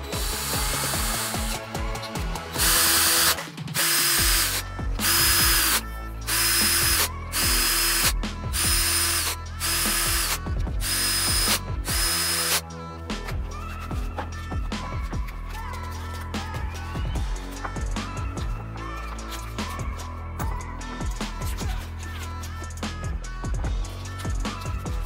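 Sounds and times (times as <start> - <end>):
power drill whining: 0.0 - 12.6
background music: 0.0 - 25.0.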